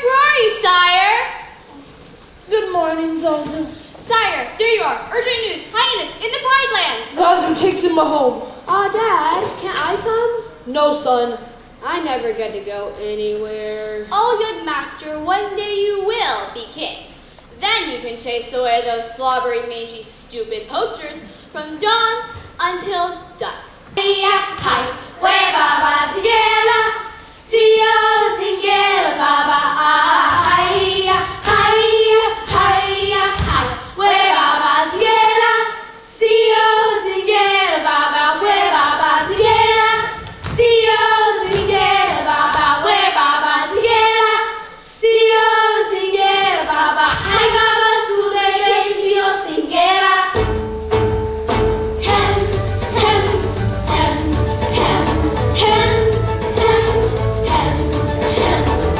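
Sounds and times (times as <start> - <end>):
children's choir singing: 23.9 - 58.9
instrumental music: 50.3 - 58.9.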